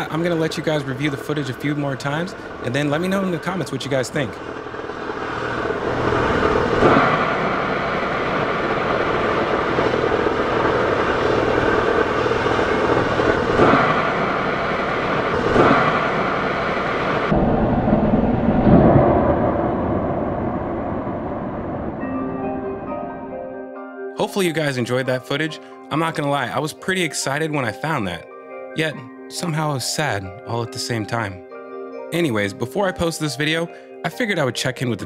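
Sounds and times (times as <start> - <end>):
music: 0.0 - 5.8, 22.0 - 35.0
rocket venting loud rushing hiss: 0.0 - 17.3.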